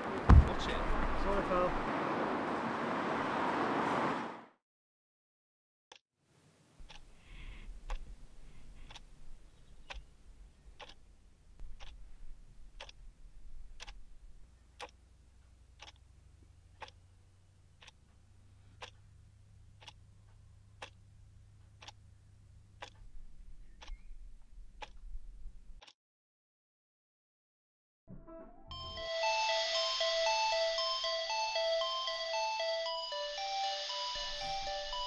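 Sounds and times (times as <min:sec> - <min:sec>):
alarm clock ticking: 0:08.8 - 0:09.1, 0:10.8 - 0:11.0, 0:11.7 - 0:12.0, 0:13.8 - 0:14.0, 0:14.8 - 0:15.0, 0:15.8 - 0:16.1, 0:16.7 - 0:17.2, 0:17.8 - 0:18.0, 0:19.7 - 0:22.1, 0:22.8 - 0:23.0, 0:28.7 - 0:35.0.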